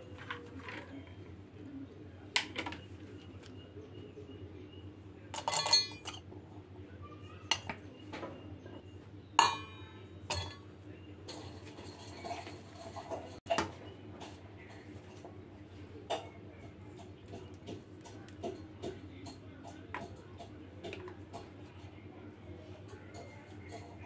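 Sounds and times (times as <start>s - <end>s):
steel kitchenware clinking: 5.3s - 6.3s, 7.5s - 7.8s, 9.4s - 15.3s, 22.8s - 24.0s.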